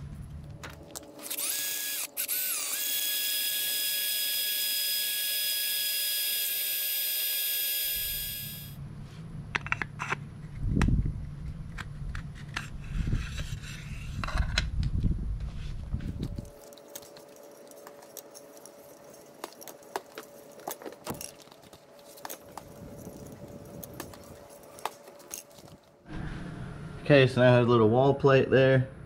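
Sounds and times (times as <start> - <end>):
handling noise: 15.4 - 26.2.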